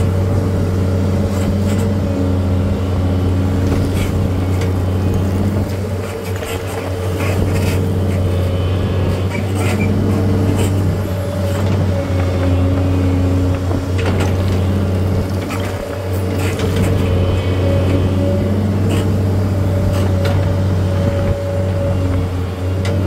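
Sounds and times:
machine engine running: 0.0s - 23.0s
knocks and clanks: 13.5s - 18.0s.

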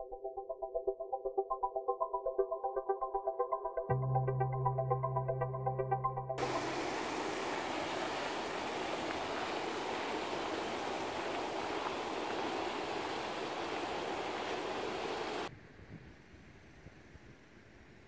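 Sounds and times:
water rushing from chute: 6.4s - 15.5s.

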